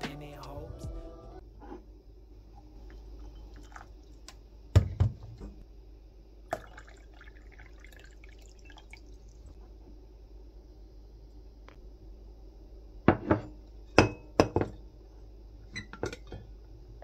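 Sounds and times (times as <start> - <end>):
water pouring into a mug: 3.2 - 4.3, 6.5 - 9.5.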